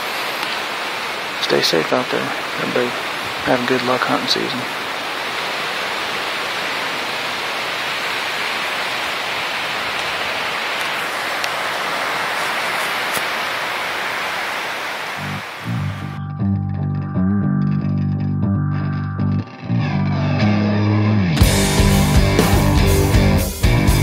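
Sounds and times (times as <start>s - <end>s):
wind rushing through trees: 0.0s - 16.2s
guitar music: 15.2s - 24.0s.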